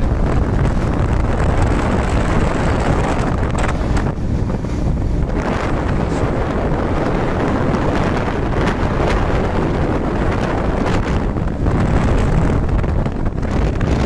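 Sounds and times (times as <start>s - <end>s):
road noise: 0.0s - 14.0s
wind buffeting microphone: 0.0s - 14.0s.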